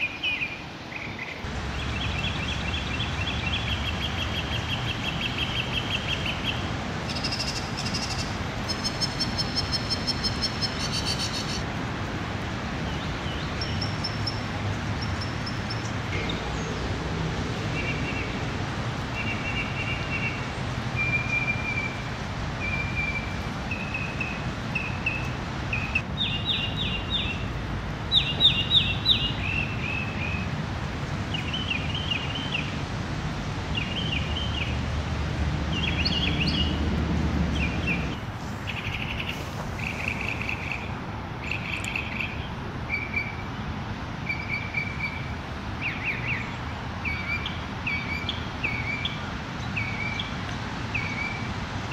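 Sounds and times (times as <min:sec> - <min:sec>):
rain hissing: 0:38.0 - 0:41.3.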